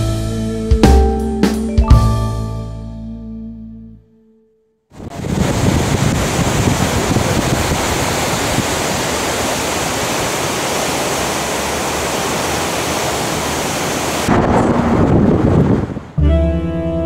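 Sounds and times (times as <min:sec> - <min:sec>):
loud rushing hiss: 0:05.4 - 0:14.3.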